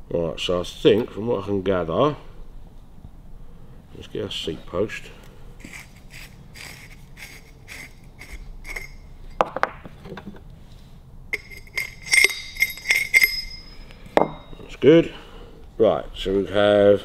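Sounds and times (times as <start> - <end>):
metal tube scraping and tapping: 5.6 - 10.2, 11.3 - 14.6
ringing metal clinks: 11.4 - 14.8.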